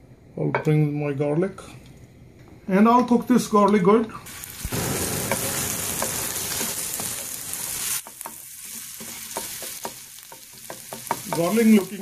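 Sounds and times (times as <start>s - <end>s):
garlic sizzling in oil: 4.2s - 12.0s
spatula scraping and tapping pan: 7.9s - 12.0s.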